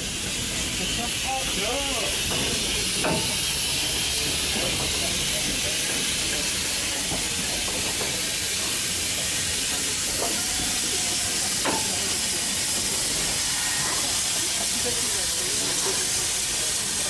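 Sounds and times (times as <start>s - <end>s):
steam locomotive hissing: 0.0s - 17.0s.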